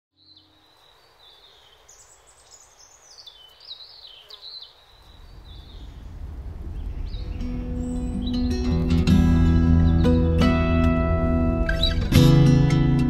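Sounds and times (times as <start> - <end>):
birds whistling: 0.2 - 9.0, 9.6 - 10.3, 11.7 - 12.1.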